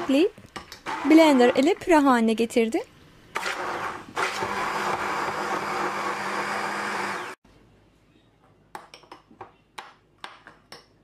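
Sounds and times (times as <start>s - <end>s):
immersion blender motor whine: 3.4s - 7.4s.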